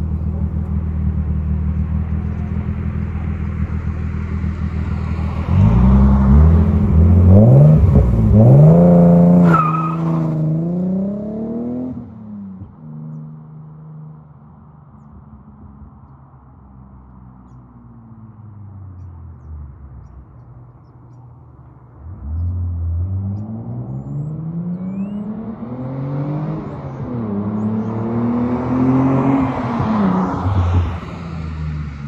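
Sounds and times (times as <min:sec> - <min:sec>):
car engine accelerating hard: 0:00.0 - 0:12.2, 0:22.1 - 0:32.0
car passing by: 0:23.0 - 0:32.0.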